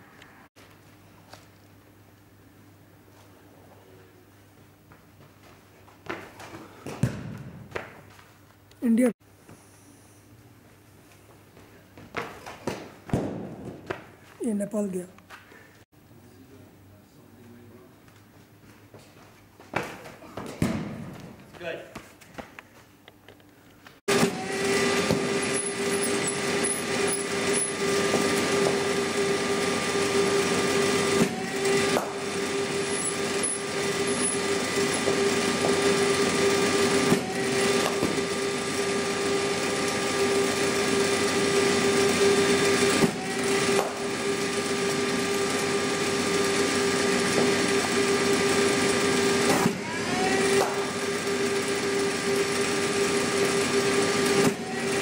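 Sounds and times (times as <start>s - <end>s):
electric motor humming: 24.1s - 55.0s
motor whine rising: 24.1s - 55.0s.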